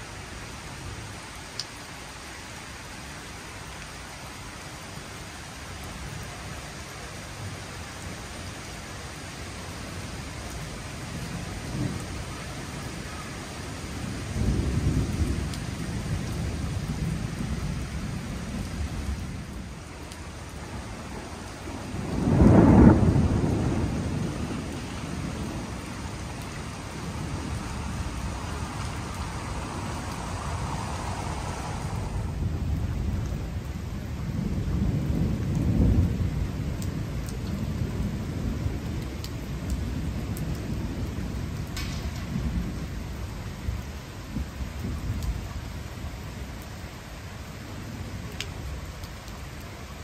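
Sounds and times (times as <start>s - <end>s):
rain on wet paving: 0.0s - 50.0s
thunder rumbling: 10.6s - 45.5s.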